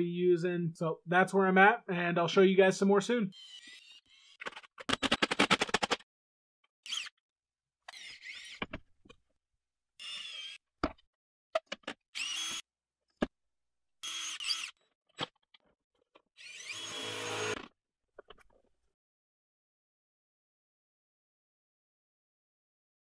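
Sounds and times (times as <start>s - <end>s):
cordless drill whining: 3.3s - 4.4s, 6.8s - 7.1s, 7.9s - 8.6s, 10.0s - 10.6s, 12.1s - 12.7s, 14.0s - 14.8s, 16.4s - 17.6s.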